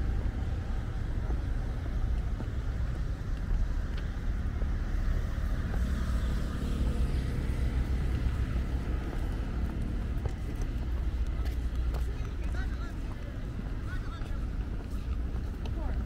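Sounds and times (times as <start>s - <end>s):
low rumble of seaside ambience: 0.0s - 16.0s.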